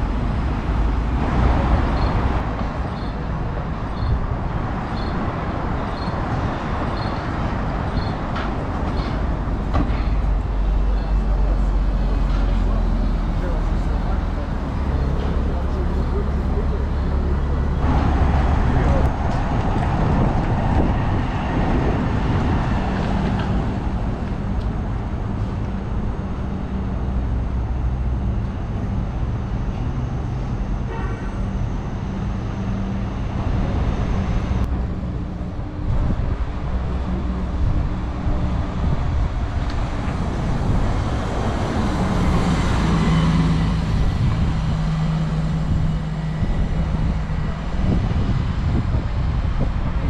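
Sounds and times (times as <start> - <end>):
vehicles driving past: 0.0 - 50.0.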